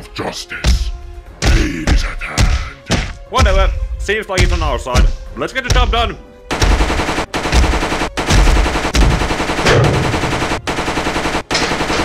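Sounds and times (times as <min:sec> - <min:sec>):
automatic gunfire: 0:06.5 - 0:12.0.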